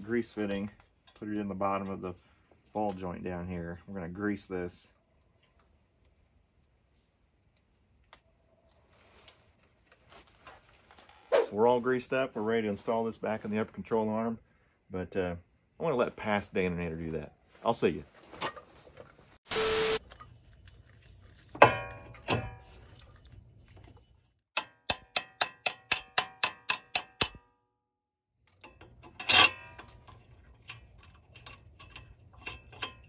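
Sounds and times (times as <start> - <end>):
metal tools clanking: 28.5 - 33.0.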